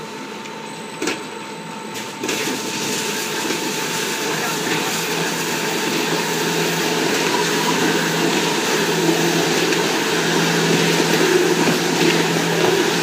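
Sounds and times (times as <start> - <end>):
veneer peeling lathe running: 3.5 - 13.0.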